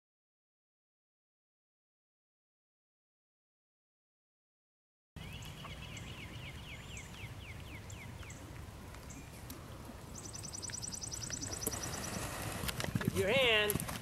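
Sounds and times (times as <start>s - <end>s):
songbird chirping: 5.2s - 13.7s.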